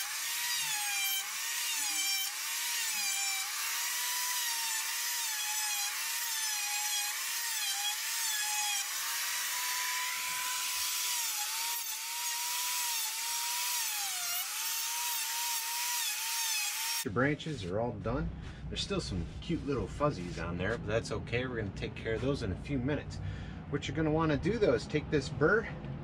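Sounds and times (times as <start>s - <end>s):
chainsaw cutting wood: 0.0s - 17.1s.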